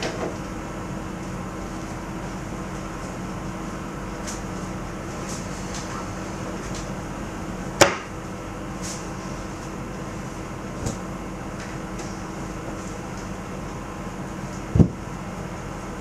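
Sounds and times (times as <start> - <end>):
electrical fan hum: 0.0 - 16.0.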